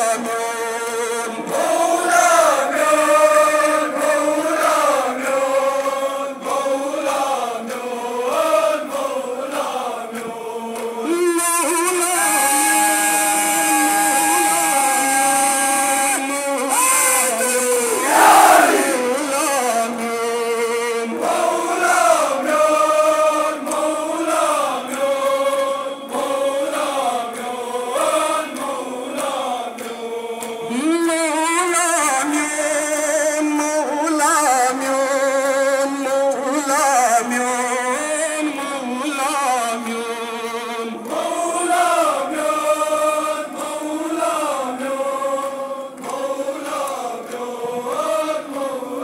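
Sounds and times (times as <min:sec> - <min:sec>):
voices chanting a lament: 0:00.0 - 0:49.0.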